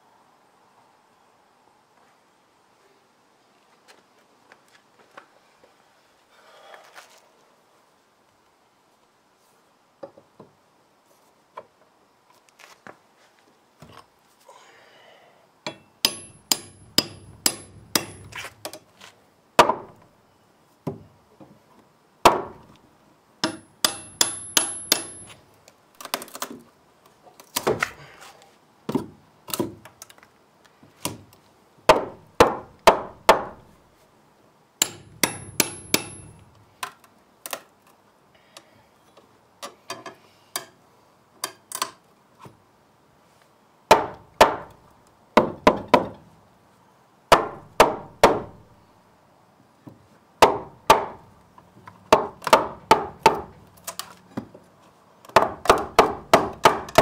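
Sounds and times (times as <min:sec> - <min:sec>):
hammer striking steel pry bar: 0:15.7 - 0:18.4, 0:23.4 - 0:25.4, 0:34.8 - 0:36.4.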